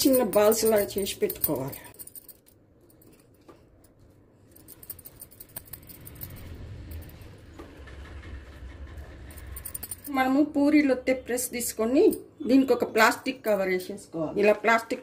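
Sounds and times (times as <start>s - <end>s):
low rumble: 5.7s - 10.1s.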